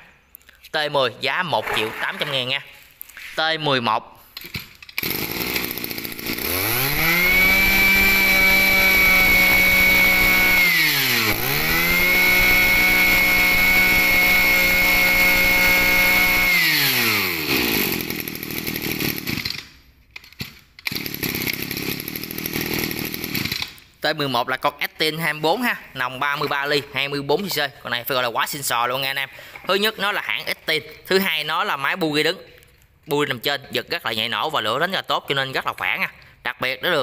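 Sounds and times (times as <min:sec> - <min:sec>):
brush cutter engine revving: 0:01.6 - 0:02.5, 0:05.0 - 0:19.6, 0:20.8 - 0:23.8.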